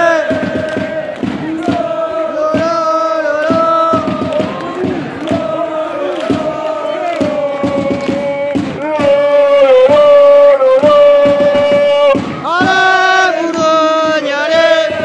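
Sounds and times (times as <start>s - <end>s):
crowd chanting: 0.0s - 15.0s.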